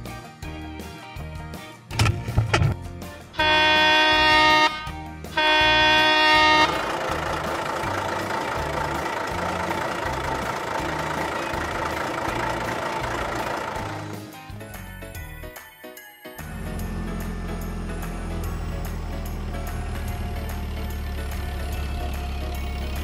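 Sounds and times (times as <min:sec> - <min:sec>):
truck engine running: 0:01.9 - 0:15.0, 0:16.4 - 0:23.0
truck horn blasts: 0:03.4 - 0:11.7.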